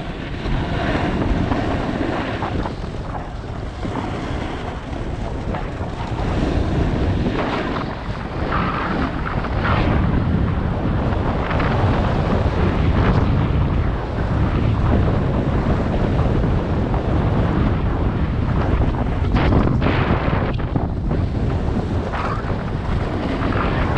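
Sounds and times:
wind noise on microphone: 0:00.0 - 0:23.9
snowboard edges scraping snow: 0:00.1 - 0:08.9.

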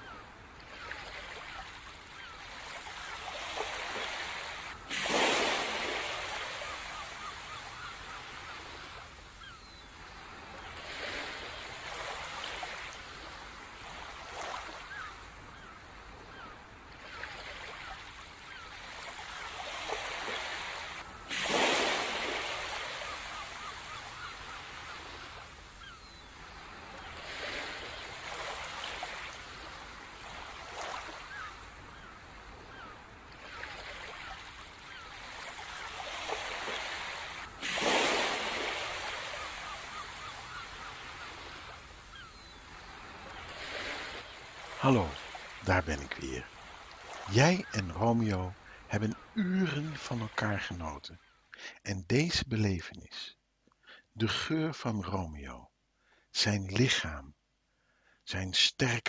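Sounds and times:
faint bird calls: 0:00.0 - 0:51.7
ocean surf washing in: 0:03.5 - 0:09.1, 0:19.3 - 0:25.6, 0:35.2 - 0:50.4.

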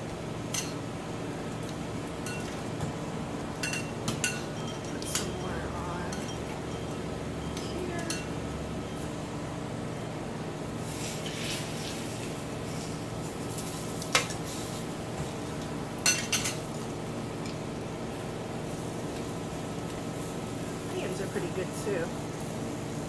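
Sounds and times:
steady background hum: 0:00.0 - 0:23.0
metal tongs clinking on pan: 0:00.5 - 0:00.8, 0:03.6 - 0:06.9, 0:07.5 - 0:08.4, 0:16.0 - 0:16.6.

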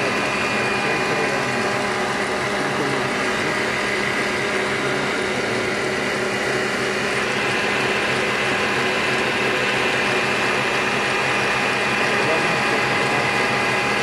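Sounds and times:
stand mixer whisking batter: 0:00.0 - 0:14.0.

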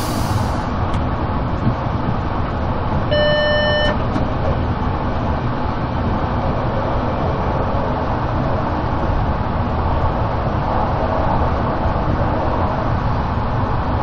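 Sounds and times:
train wheels rumbling on rails: 0:00.0 - 0:03.1
short high beep: 0:03.1 - 0:04.0.

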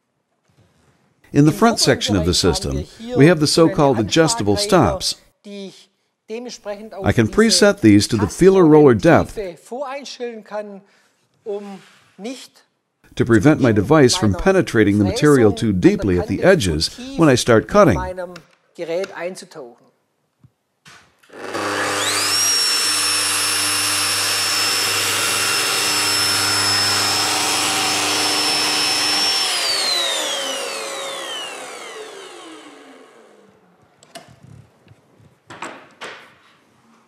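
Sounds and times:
milling machine whining: 0:21.6 - 0:33.0.

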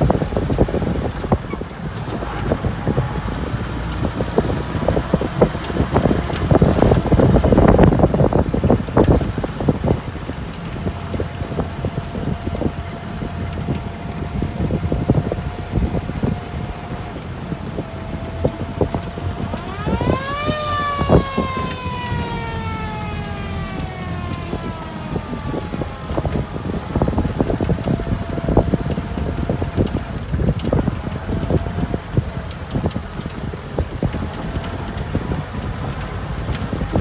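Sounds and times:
jeep engines driving on gravel: 0:00.0 - 0:37.0
siren winding up and down: 0:10.8 - 0:37.0.

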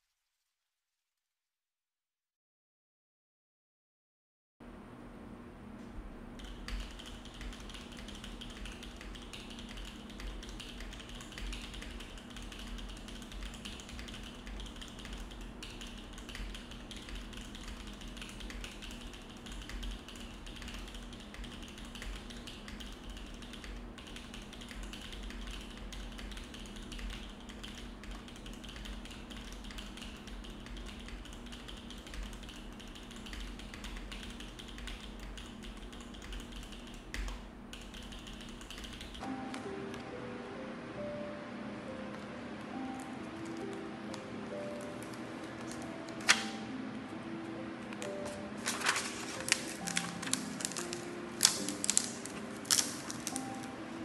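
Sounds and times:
mechanical keyboard typing: 0:06.4 - 0:40.0, 0:42.1 - 0:46.7, 0:47.8 - 0:53.8.

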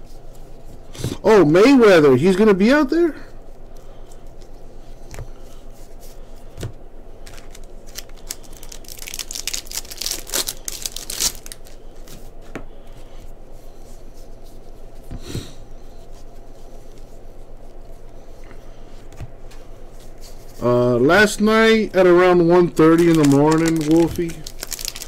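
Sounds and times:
steady low hum: 0:00.0 - 0:25.0
trading cards rustling and clicking: 0:03.6 - 0:12.3, 0:22.8 - 0:25.0.

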